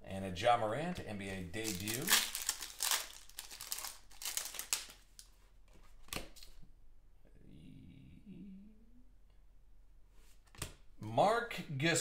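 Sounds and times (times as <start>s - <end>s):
foil wrapper tearing and crinkling: 1.6s - 5.2s.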